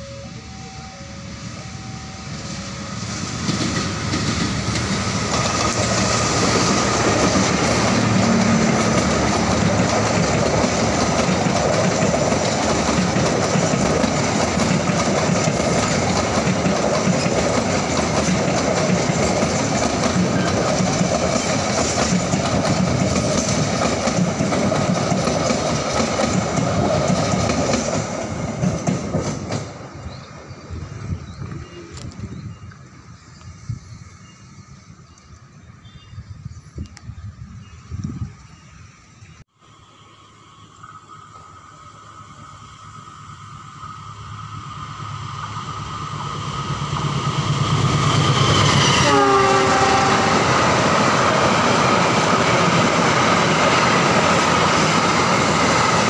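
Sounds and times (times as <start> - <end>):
diesel locomotive passing: 0.0 - 56.0
train wheels clacking on rail joints: 3.1 - 30.3.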